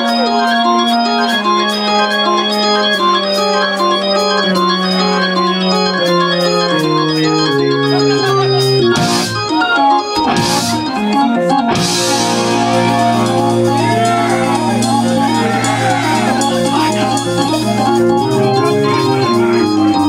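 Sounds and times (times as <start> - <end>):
organ chords: 0.0 - 20.0
bass notes: 10.2 - 20.0.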